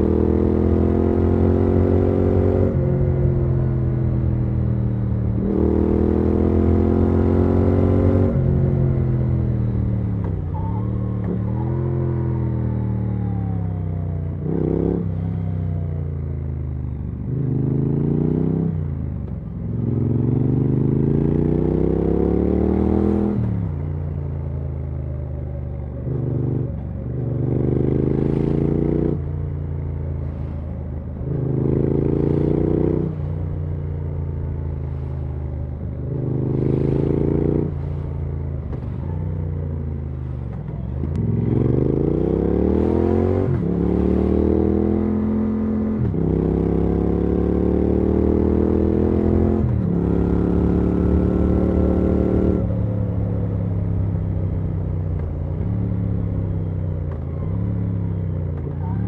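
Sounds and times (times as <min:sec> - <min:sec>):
motorcycle engine revving: 0:00.0 - 0:13.8, 0:35.9 - 0:59.0.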